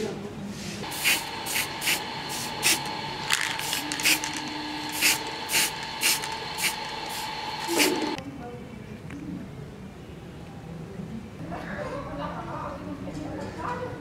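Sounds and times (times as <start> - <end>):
aerosol spray can hissing: 0.8 - 2.9, 3.5 - 8.2.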